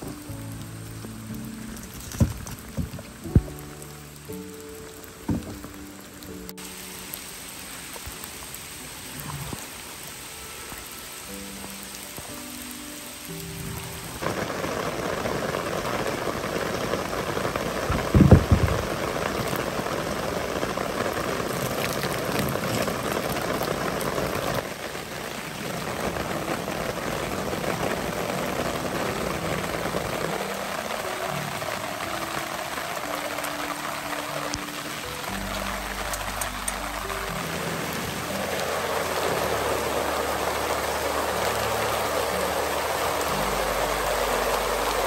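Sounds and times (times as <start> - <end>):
background music with steady tones: 0.0 - 45.0
heavy rain on wooden deck: 0.0 - 45.0
loud low thump: 17.9 - 19.0.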